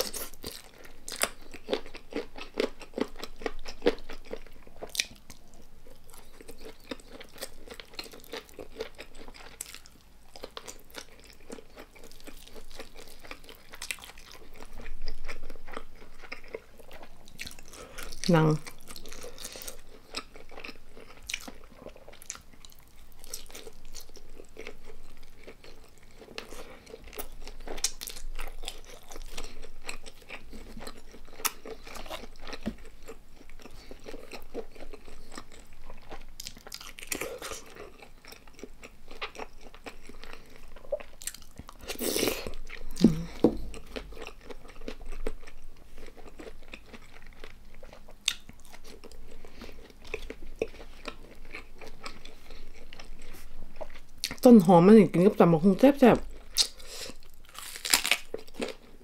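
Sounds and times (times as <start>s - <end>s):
person chewing crunchy food: 0.0s - 54.8s, 56.2s - 59.0s.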